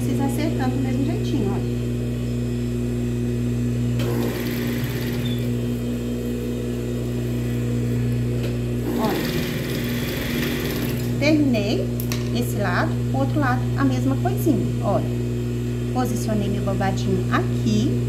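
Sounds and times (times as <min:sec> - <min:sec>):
sewing machine motor humming: 0:04.0 - 0:05.8, 0:08.8 - 0:11.2.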